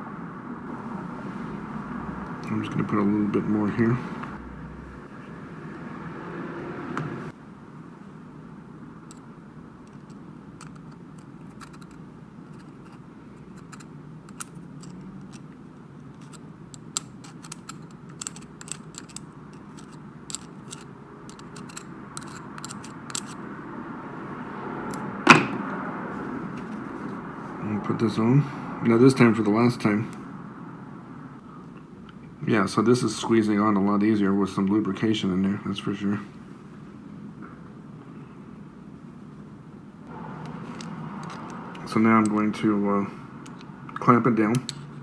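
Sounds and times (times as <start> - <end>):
steady background hum: 0.0 - 45.0
screwdriver clicking and scraping metal: 9.9 - 15.5, 16.1 - 23.4, 40.4 - 42.4
sharp knock: 25.2 - 25.6.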